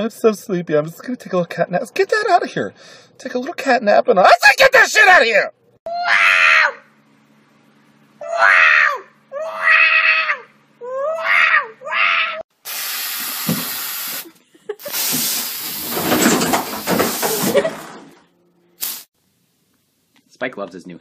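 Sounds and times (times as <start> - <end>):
cat yowling: 5.9 - 6.8, 8.2 - 12.4
rough hissing rush: 12.6 - 17.6
steady hiss: 12.6 - 17.6, 18.8 - 19.4.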